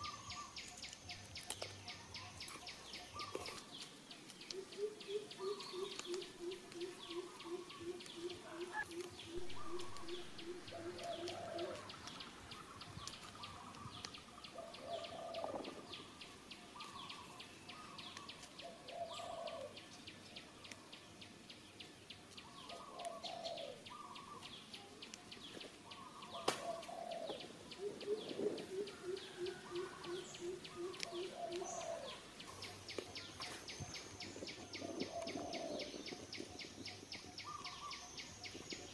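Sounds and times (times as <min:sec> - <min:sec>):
low hooting bird call: 0:04.5 - 0:16.1, 0:25.9 - 0:33.6, 0:34.2 - 0:36.6
short high bird calls: 0:04.6 - 0:12.0.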